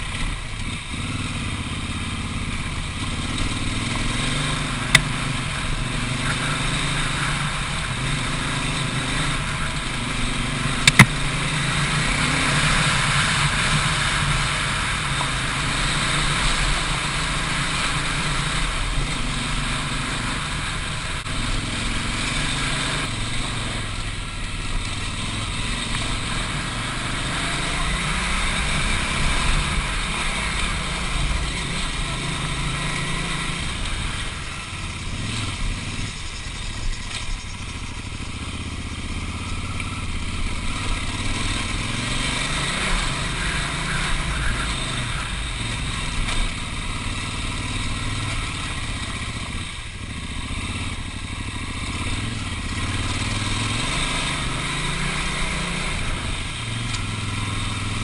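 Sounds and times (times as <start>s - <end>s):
motorcycle engine revving: 0.0s - 58.0s.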